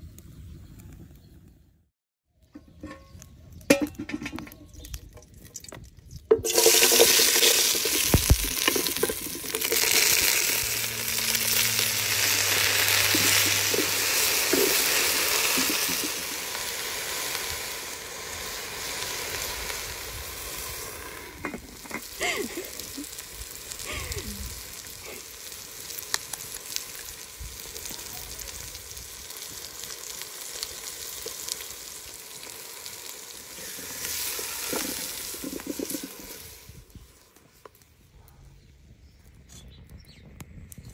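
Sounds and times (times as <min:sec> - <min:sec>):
greens sizzling in hot oil: 0:06.4 - 0:37.4.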